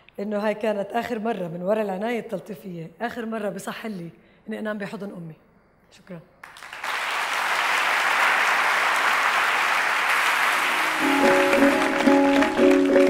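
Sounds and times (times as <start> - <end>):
audience applauding: 6.4 - 13.0
instrumental tune of plucked notes: 10.8 - 13.0.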